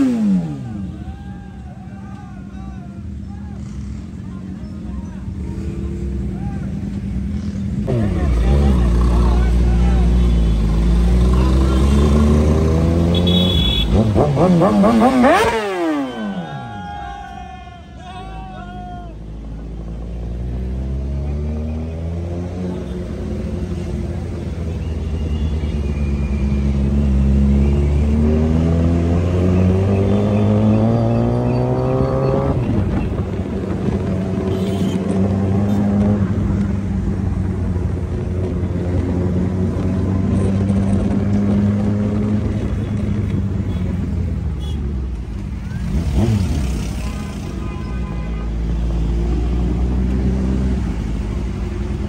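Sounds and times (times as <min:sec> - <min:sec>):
motorcycle engine accelerating: 0:07.2 - 0:16.4.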